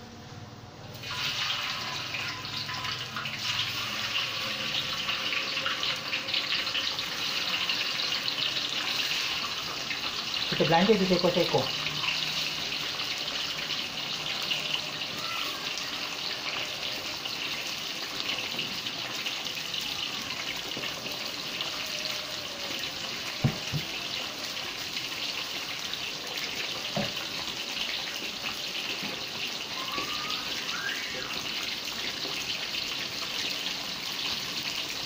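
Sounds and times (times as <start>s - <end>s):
oil sizzling in wok: 0.8s - 35.0s
oil popping: 23.4s - 24.0s.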